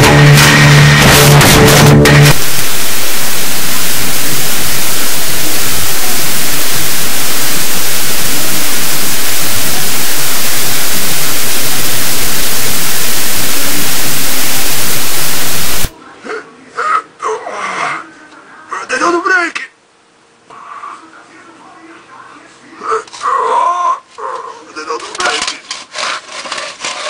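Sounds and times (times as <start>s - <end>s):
static hiss: 2.1s - 16.0s.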